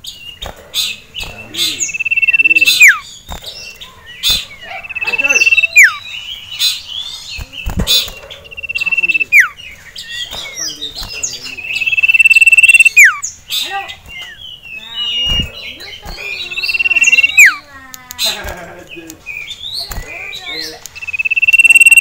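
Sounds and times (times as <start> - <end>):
bird chirps: 0.0 - 22.0
bird whistling: 0.8 - 3.2, 4.1 - 6.9, 8.0 - 10.8, 11.6 - 13.3, 14.1 - 17.7, 20.9 - 22.0.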